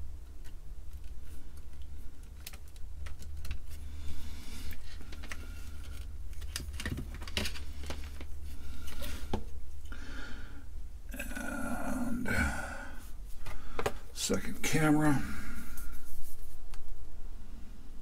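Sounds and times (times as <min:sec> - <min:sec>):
steady low hum: 0:00.0 - 0:18.0
clicks and rattles of handling: 0:00.2 - 0:03.8, 0:04.7 - 0:09.4.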